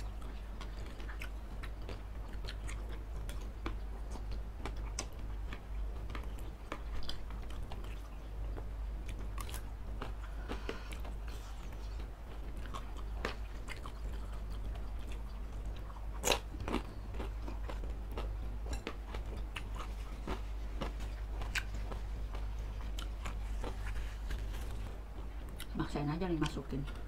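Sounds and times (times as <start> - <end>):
close chewing mouth sounds: 0.0 - 27.0
food crunches: 11.8 - 25.7.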